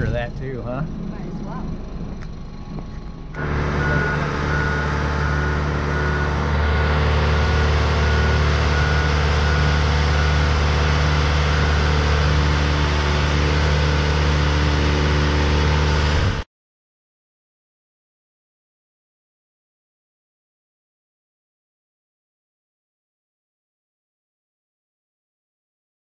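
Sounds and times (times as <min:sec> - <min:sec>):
engine running steadily: 0:00.0 - 0:16.4
warning beeper: 0:03.4 - 0:16.4.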